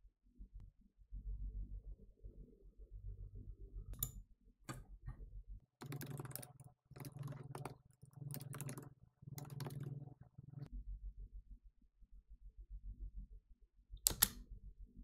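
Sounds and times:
keyboard typing: 5.8 - 10.7
single clicks: 14.0 - 14.4.

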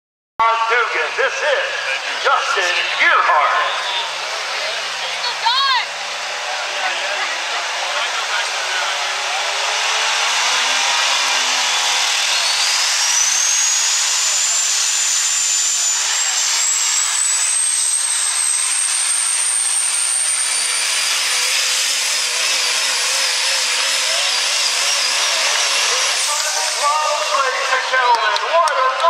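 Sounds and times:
diesel truck engine at full power: 0.4 - 29.0
turbocharger whistle: 7.2 - 27.9.

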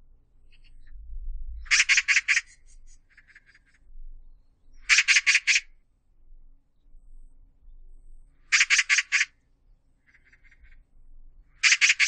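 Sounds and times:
magpie harsh chattering calls: 1.7 - 3.6, 4.8 - 5.7, 8.5 - 9.4, 10.1 - 10.8, 11.6 - 12.0.

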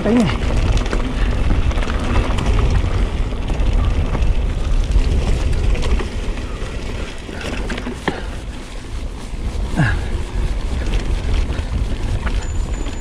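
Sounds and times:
bike rattling and clicking: 0.0 - 13.0
bike tyres rumbling on dirt: 0.0 - 13.0.

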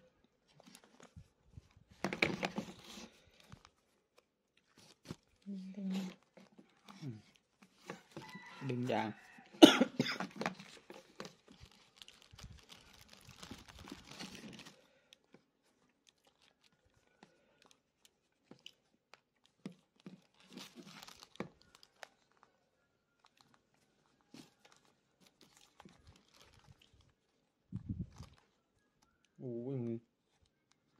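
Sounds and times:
soft rustling and crinkling: 0.0 - 30.9.

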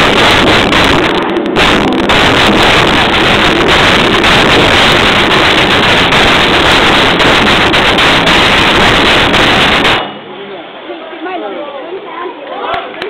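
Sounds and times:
large drums drumming: 0.0 - 10.2.

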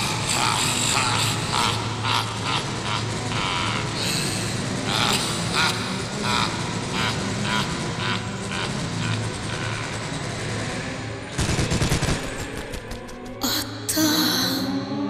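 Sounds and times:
automatic gunfire bursts: 11.3 - 13.2
gunshots: 11.3 - 13.3.

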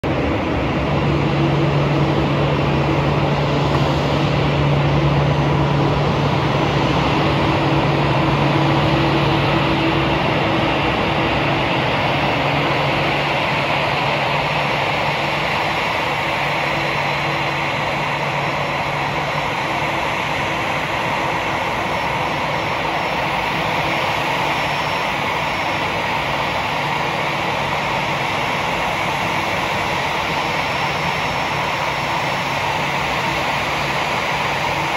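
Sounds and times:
low hum: 0.0 - 23.8
jet engines idling with whine: 0.0 - 34.9.

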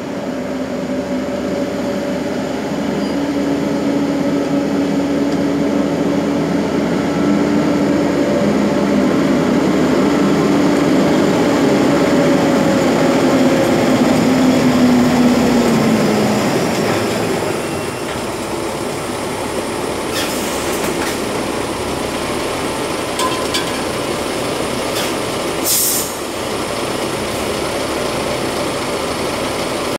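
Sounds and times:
truck diesel engine running: 0.0 - 29.9
short sharp air hisses: 25.0 - 26.2.

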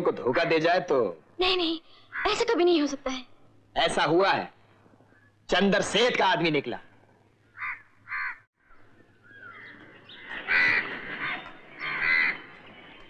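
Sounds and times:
crows cawing: 0.2 - 0.7, 2.0 - 2.5, 7.4 - 12.6
bird chirps: 7.5 - 10.4.

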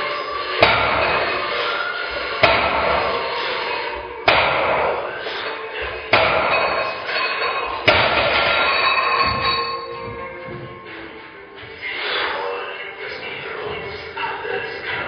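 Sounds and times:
background music: 0.0 - 15.0
barbell plates knocking on floor: 7.8 - 10.8.

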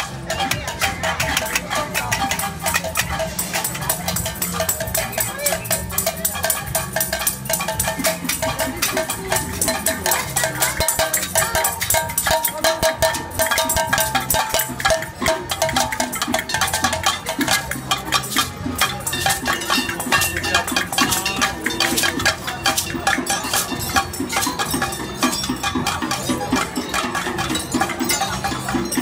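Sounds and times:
banging on metal pots and lids: 0.0 - 29.0.

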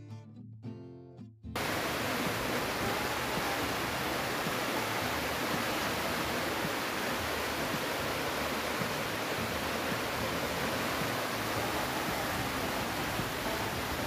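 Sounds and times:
river water rushing over rocks: 1.6 - 14.0.

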